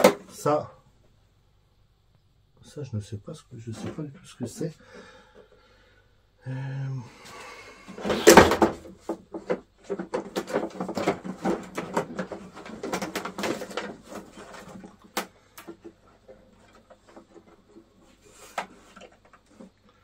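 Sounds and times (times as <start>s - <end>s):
clicks knocks and rustling: 8.0s - 19.8s.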